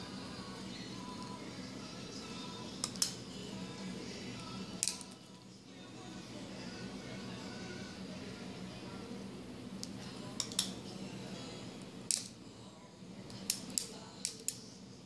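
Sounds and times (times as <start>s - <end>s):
metal instruments snipping wires: 2.8s - 3.2s, 4.8s - 5.2s, 9.8s - 10.8s, 12.1s - 12.3s, 13.3s - 14.6s.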